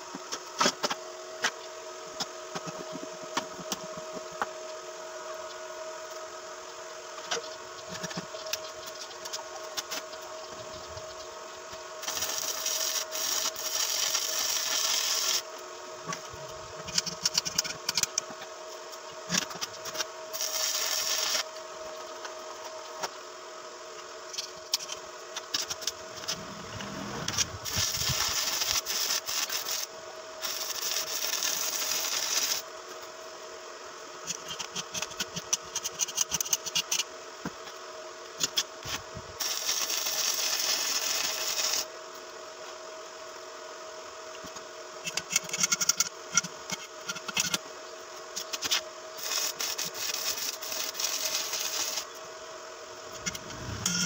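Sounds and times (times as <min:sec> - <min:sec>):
steady hum: 0:00.0 - 0:34.6, 0:38.7 - 0:39.4, 0:43.0 - 0:54.0
welding arc hissing and crackling: 0:10.6 - 0:15.5, 0:19.3 - 0:22.0, 0:24.6 - 0:32.7, 0:38.4 - 0:41.9, 0:48.4 - 0:52.2.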